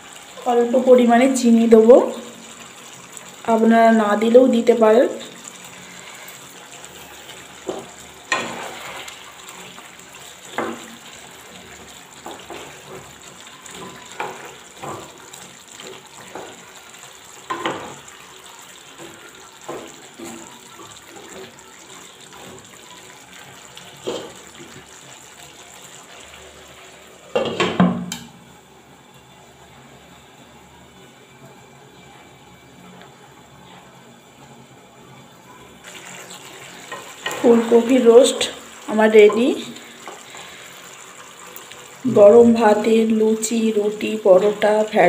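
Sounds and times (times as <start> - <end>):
simmering sauce hissing: 0.0 - 45.0
spatula scraping a pan: 5.8 - 9.3.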